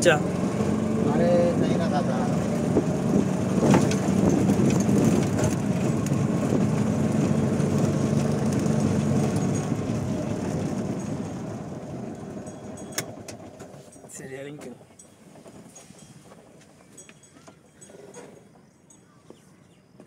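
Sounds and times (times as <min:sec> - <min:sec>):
auto-rickshaw engine droning: 0:00.0 - 0:18.9.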